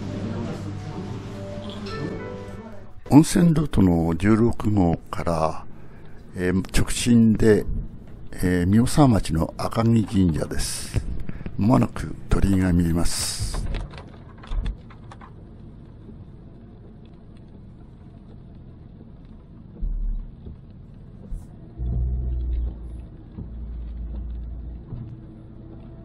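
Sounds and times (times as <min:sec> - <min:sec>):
car road and engine rumble: 0:13.9 - 0:26.0.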